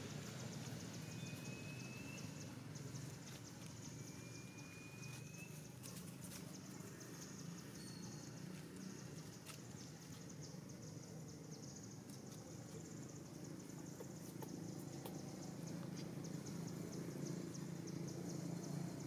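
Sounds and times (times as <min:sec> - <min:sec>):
thin rising whistle: 0:04.0 - 0:05.6.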